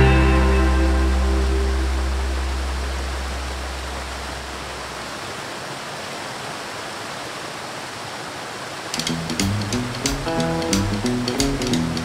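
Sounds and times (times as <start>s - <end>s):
low held music note: 0.0s - 3.9s
waterfall rushing: 0.0s - 12.0s.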